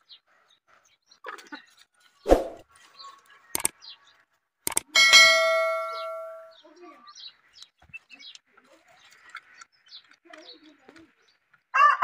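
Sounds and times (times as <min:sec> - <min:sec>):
sharp clicks: 0:03.5 - 0:03.8, 0:04.7 - 0:04.9
bright bell ding: 0:05.0 - 0:06.6.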